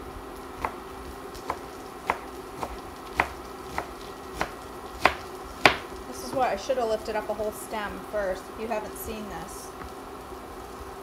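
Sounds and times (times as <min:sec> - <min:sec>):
knife chopping on cutting board: 0:00.6 - 0:06.4.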